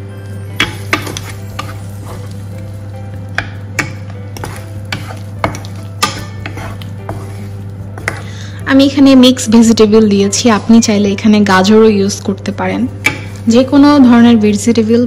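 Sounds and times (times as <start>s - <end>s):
vegetables sizzling: 0.0s - 15.0s
spatula scraping frying pan: 0.6s - 2.5s, 3.8s - 8.6s, 12.9s - 13.7s.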